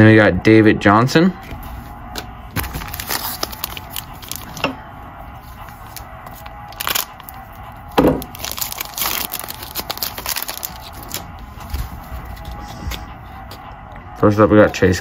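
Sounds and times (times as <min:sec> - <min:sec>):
plastic wrapper crinkling and tearing: 0:02.2 - 0:04.7, 0:05.4 - 0:13.6.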